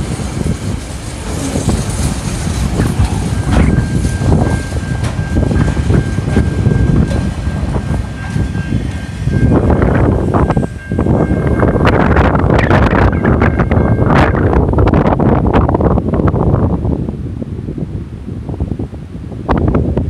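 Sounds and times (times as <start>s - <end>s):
train wheels clattering over rail joints: 0.0s - 10.8s
high-pitched tone: 3.3s - 14.4s.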